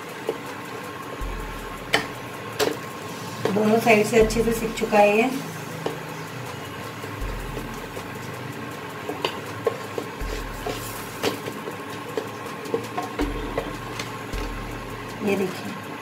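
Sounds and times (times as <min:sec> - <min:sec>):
cooling fan humming: 0:00.0 - 0:16.0
spatula tapping and scraping: 0:01.9 - 0:03.6, 0:09.0 - 0:14.8.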